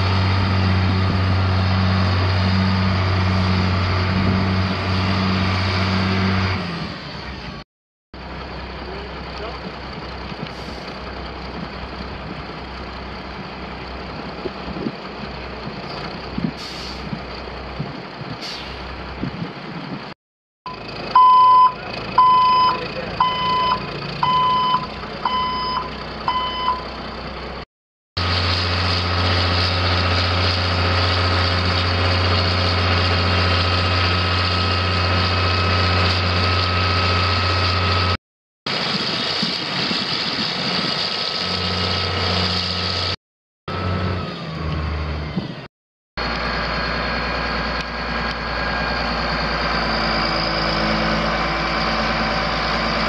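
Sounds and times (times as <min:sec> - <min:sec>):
diesel truck engine running: 0:00.0 - 0:07.6, 0:08.2 - 0:53.0
reversing alarm beeps: 0:20.7 - 0:26.9.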